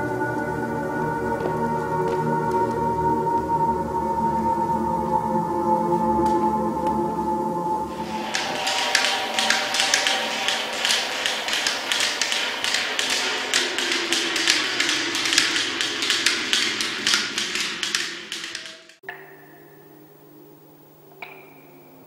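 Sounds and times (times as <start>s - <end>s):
droning tone: 0.0s - 20.6s
rapid clicking taps: 7.9s - 19.0s.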